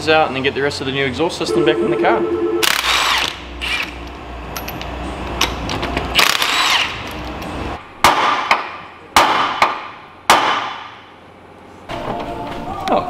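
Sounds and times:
impact wrench bursts: 0:02.6 - 0:04.1, 0:05.5 - 0:07.3
sharp knocks: 0:08.0 - 0:11.0.

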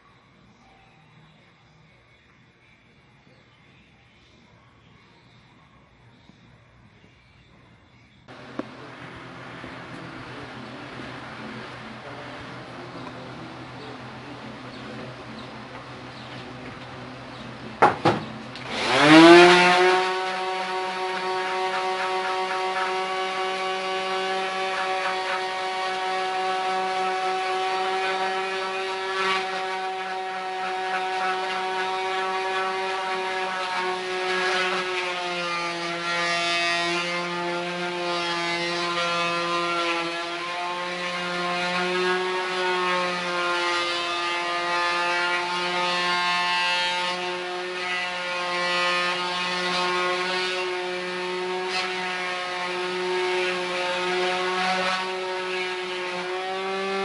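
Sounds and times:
electric sander motor hum: 0:08.3 - 0:57.0
sandpaper rasping on wood: 0:18.7 - 0:57.0.

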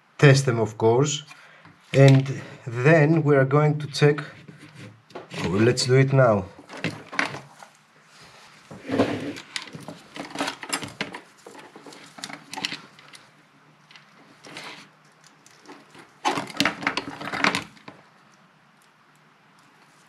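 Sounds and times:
small clicks knocks and rustles: 0:08.7 - 0:20.0.

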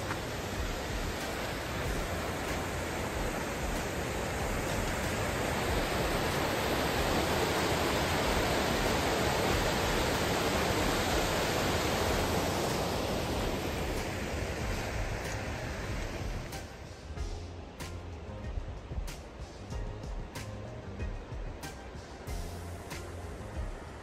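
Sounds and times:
water rushing over rocks: 0:00.0 - 0:17.1.

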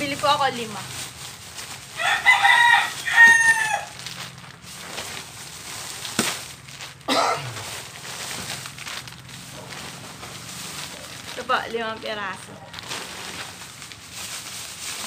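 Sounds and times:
rooster crowing: 0:02.0 - 0:04.0.

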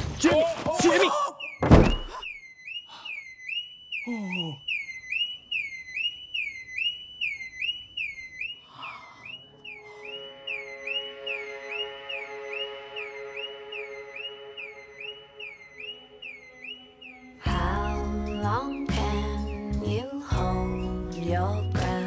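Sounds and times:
car alarm siren whooping: 0:00.8 - 0:21.6.

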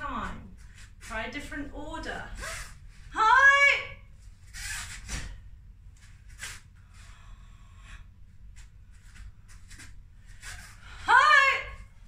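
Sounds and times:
low room hum: 0:00.0 - 0:12.0
person breathing: 0:06.8 - 0:08.4.

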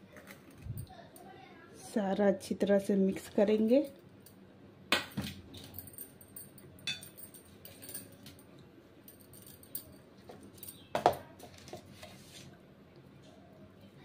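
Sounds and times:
metal bowl and plate clinking: 0:06.8 - 0:08.2.

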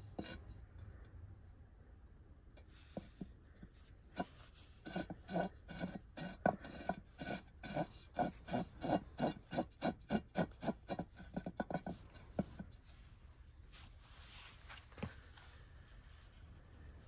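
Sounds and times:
ceramic pot scraping on stone: 0:00.0 - 0:00.5, 0:04.1 - 0:12.7.

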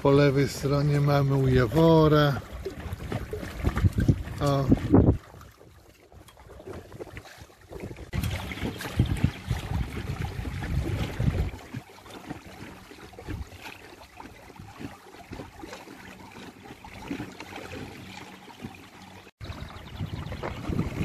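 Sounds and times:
small splashes: 0:00.0 - 0:21.0
water lapping against boat hull: 0:00.0 - 0:21.0
wind buffeting microphone: 0:01.4 - 0:05.6, 0:06.4 - 0:11.8, 0:19.4 - 0:21.0.

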